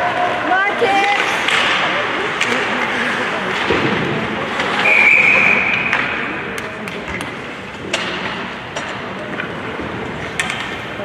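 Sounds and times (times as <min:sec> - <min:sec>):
ice rink noise: 0:00.0 - 0:11.0
sticks and pucks clacking: 0:00.0 - 0:11.0
referee's whistle: 0:04.8 - 0:06.0.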